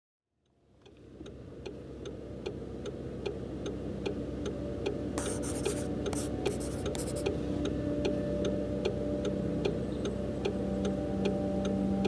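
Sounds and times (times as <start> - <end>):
low sustained drone: 3.0 - 12.0.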